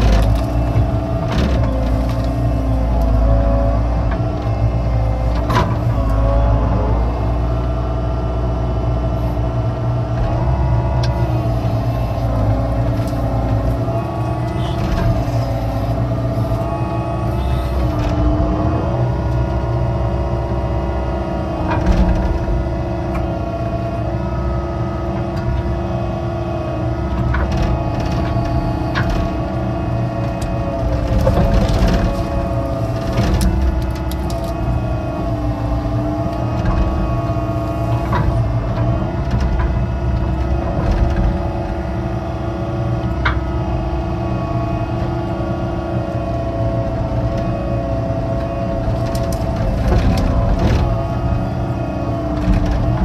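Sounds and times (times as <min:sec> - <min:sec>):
excavator engine and hydraulics: 0:00.0 - 0:53.0
digging knocks and cracks: 0:27.2 - 0:37.1.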